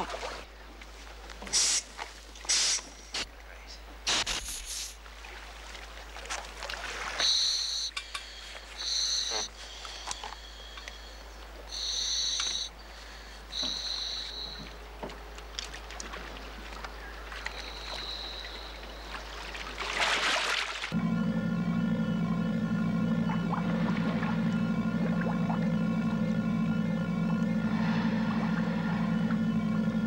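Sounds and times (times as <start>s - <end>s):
scuba regulator hissing: 1.5s - 1.9s, 2.5s - 2.9s, 7.4s - 11.0s
loud splash into water: 19.8s - 20.9s.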